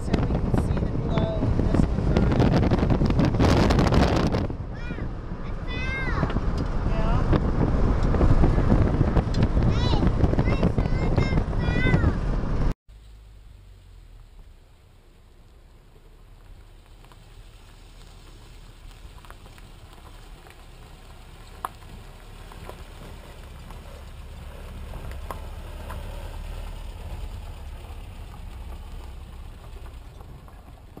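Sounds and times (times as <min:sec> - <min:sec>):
vehicle rumbling on dirt track: 0:00.0 - 0:31.0
sharp ticks and rattles: 0:15.3 - 0:31.0.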